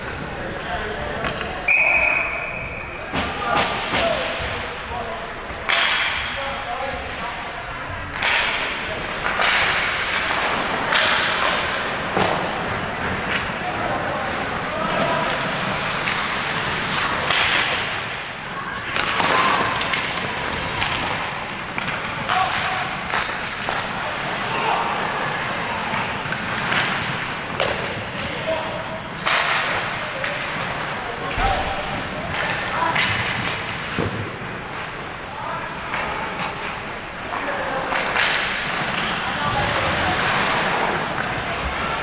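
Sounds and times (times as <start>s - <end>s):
skates scraping ice: 0.0s - 6.0s, 7.0s - 42.0s
voices: 0.0s - 42.0s
hockey sticks cracking on puck: 5.5s - 6.4s, 8.0s - 42.0s
puck hitting boards: 5.6s - 6.4s, 8.1s - 18.3s, 18.9s - 24.0s, 25.8s - 28.4s, 29.2s - 34.9s, 35.9s - 42.0s.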